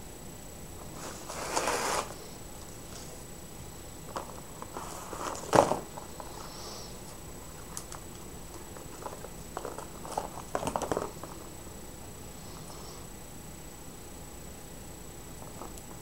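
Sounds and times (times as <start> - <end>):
faint high-pitched whine: 0.0 - 16.0
plastic packaging crinkling: 7.7 - 11.4.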